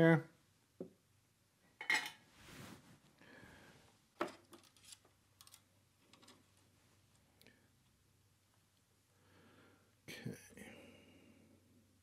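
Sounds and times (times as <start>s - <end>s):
soft rustle: 2.2s - 4.0s.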